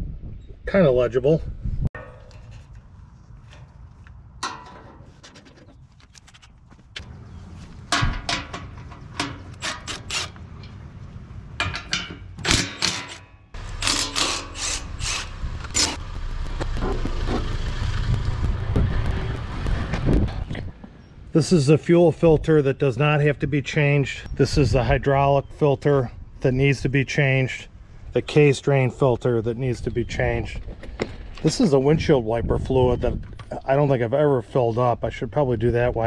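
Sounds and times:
rushing noise: 14.5s - 20.7s
low rumble: 14.6s - 20.8s.

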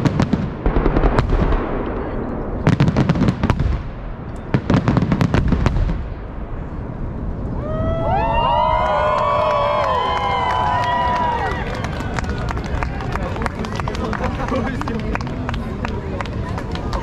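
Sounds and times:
fireworks bangs: 0.0s - 9.2s
low rumble: 0.0s - 13.9s
crowd cheering and shouting: 7.6s - 14.0s.

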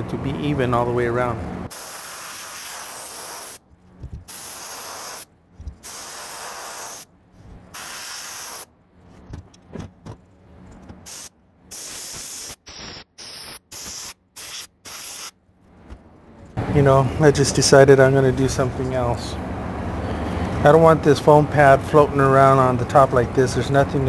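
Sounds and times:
spray gun hissing bursts: 1.7s - 3.6s, 4.3s - 7.1s, 7.7s - 8.7s, 11.0s - 15.3s.

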